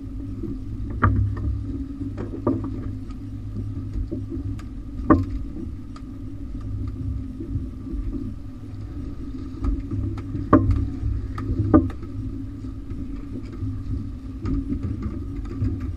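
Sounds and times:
knocks and clatters on boat deck: 0.8s - 3.0s, 3.6s - 5.7s, 9.6s - 12.2s, 12.9s - 15.9s.

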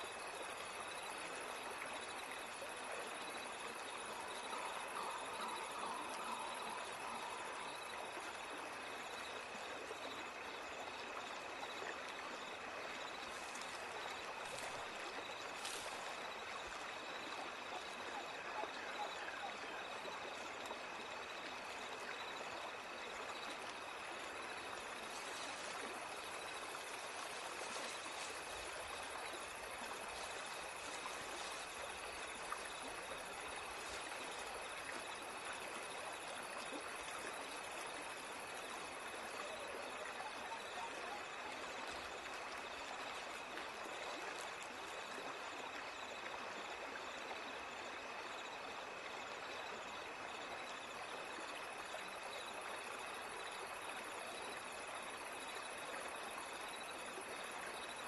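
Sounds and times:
rushing stream water: 0.0s - 58.0s.

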